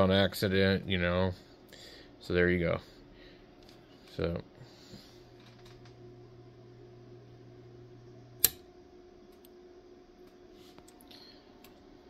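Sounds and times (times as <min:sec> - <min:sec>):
power supply transformer humming: 0:00.0 - 0:12.0
circuit breaker clicking off: 0:08.2 - 0:09.6.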